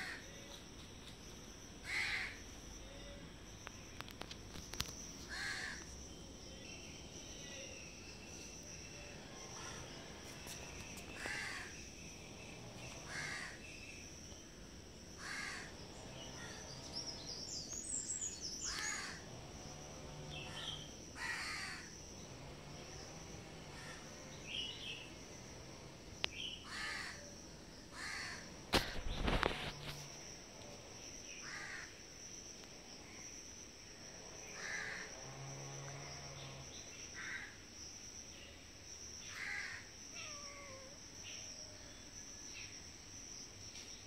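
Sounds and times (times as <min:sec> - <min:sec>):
high insect trill: 0:00.0 - 0:44.0
crow cawing: 0:01.8 - 0:02.4, 0:05.3 - 0:05.8, 0:11.2 - 0:11.7, 0:13.1 - 0:13.6, 0:15.2 - 0:15.7, 0:21.2 - 0:21.9, 0:26.6 - 0:27.2, 0:28.0 - 0:28.4, 0:31.4 - 0:31.9, 0:34.6 - 0:35.1, 0:37.2 - 0:37.5, 0:39.3 - 0:40.9.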